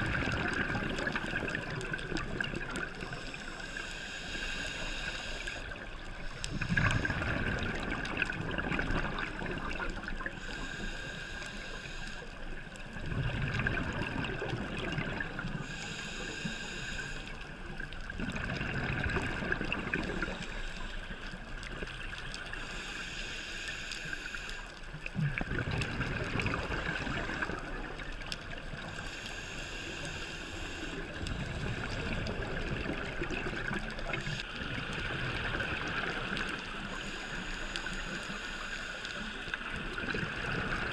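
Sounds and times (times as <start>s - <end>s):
hissing regulator inhalation: 2.8s - 7.6s, 10.0s - 12.4s, 15.6s - 17.4s, 22.5s - 24.7s, 28.8s - 32.6s, 36.3s - 40.0s
bubbly underwater exhalation: 25.2s - 27.6s.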